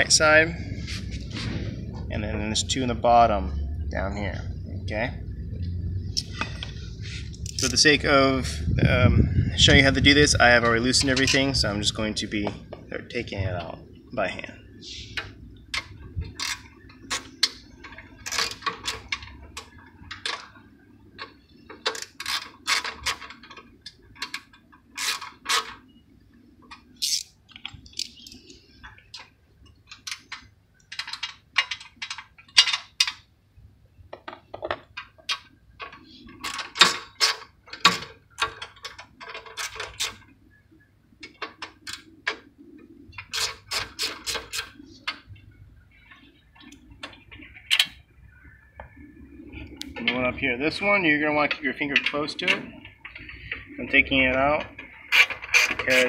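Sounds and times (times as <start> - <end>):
socket wrench clicking and rattling: 26.7 - 28.4, 54.8 - 56.0.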